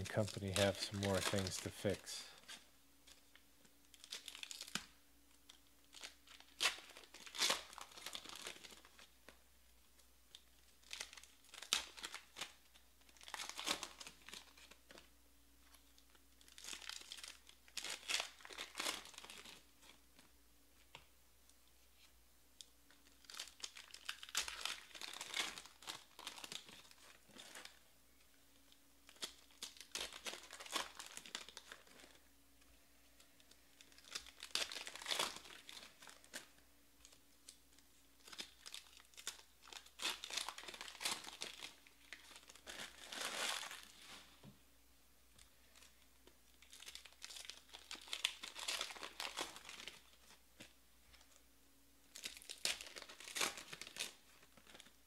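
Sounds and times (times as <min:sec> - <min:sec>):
foil packs tearing and crinkling: 0:03.9 - 0:04.8, 0:05.5 - 0:09.1, 0:10.8 - 0:15.0, 0:16.4 - 0:19.6, 0:23.1 - 0:27.8, 0:29.0 - 0:32.2, 0:33.4 - 0:37.2, 0:38.2 - 0:44.2, 0:46.6 - 0:50.2, 0:52.1 - 0:55.0.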